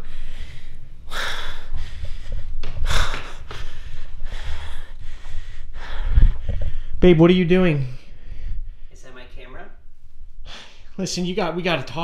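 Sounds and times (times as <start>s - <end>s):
person breathing heavily and gasping: 0.0s - 7.0s.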